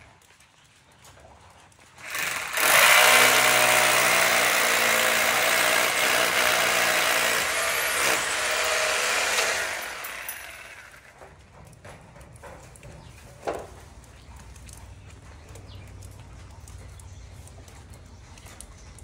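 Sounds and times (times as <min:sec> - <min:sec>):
electric drill boring into steel: 0:02.0 - 0:11.1.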